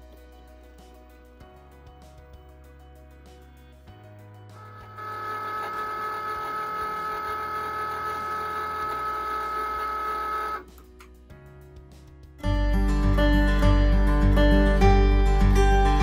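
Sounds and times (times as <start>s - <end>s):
cutting machine motors whirring: 4.6s - 10.6s.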